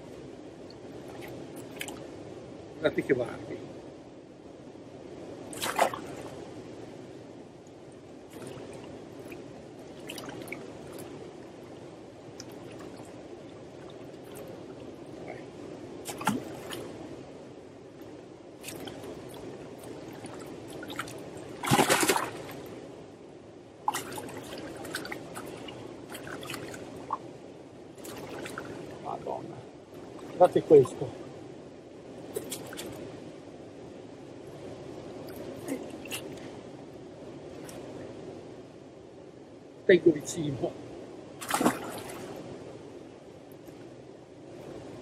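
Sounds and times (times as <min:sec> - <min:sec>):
river water rushing: 0:08.2 - 0:17.2, 0:18.0 - 0:23.0, 0:23.8 - 0:31.5, 0:41.3 - 0:42.7
fish splashing in water: 0:16.1 - 0:16.8, 0:20.2 - 0:22.7, 0:41.4 - 0:42.4.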